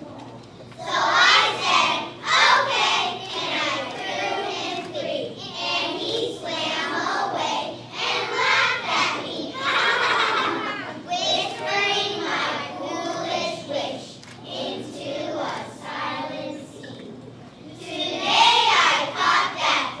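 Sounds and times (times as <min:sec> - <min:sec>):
children singing in unison: 0:00.8 - 0:10.1, 0:17.7 - 0:20.0.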